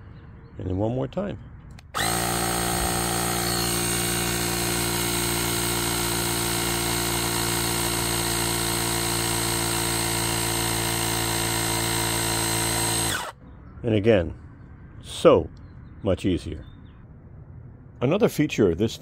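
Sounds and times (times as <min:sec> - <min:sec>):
tire inflator compressor running: 0:01.8 - 0:13.4.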